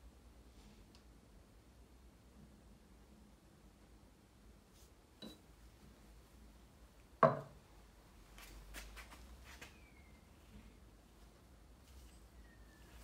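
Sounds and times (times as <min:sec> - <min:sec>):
metal container knocking on wood: 0:07.2 - 0:07.6.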